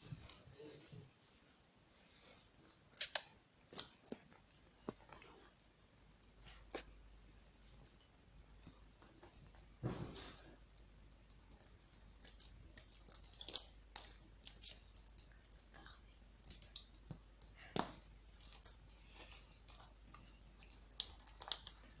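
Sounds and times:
rustling: 6.4s - 22.0s.

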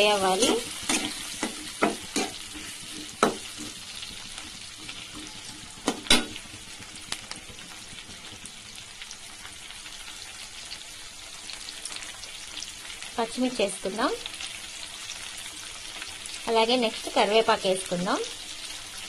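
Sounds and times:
spatula scraping and knocking pan: 0.0s - 8.5s
onions sizzling in hot oil: 0.0s - 19.0s.

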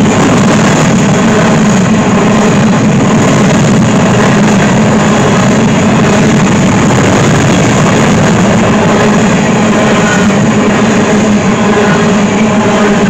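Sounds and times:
freight train wheels rumbling: 0.0s - 13.0s.

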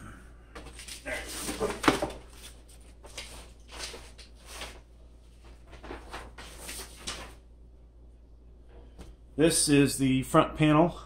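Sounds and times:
packing paper rustling: 0.6s - 7.4s.

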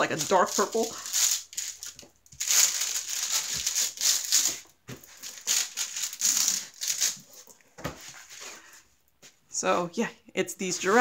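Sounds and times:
plastic film crinkling: 0.0s - 7.6s.

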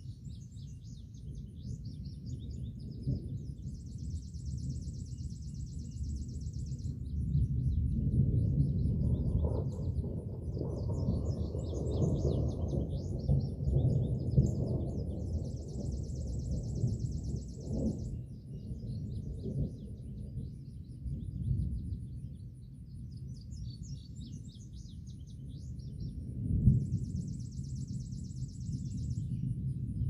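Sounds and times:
distant thunder rumbling: 6.8s - 22.1s, 26.0s - 30.0s.

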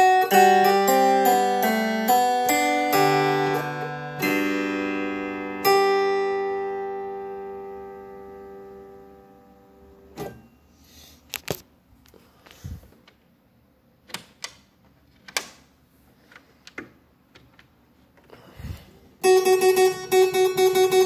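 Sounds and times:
harpsichord chord: 0.0s - 10.0s, 19.2s - 21.0s
quiet wooden clicks and knocks: 16.3s - 18.3s.

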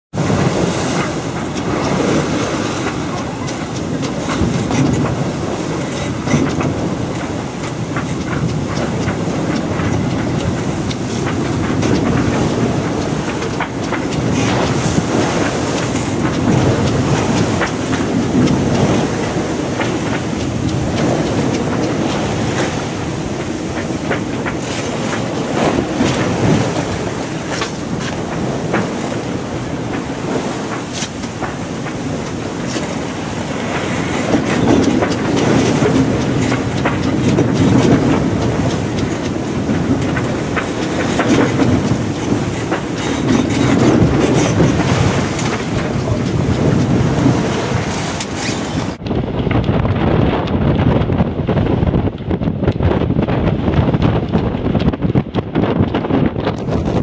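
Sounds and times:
water slapping hull: 0.1s - 57.0s
wind and water rushing past hull: 0.1s - 57.0s.

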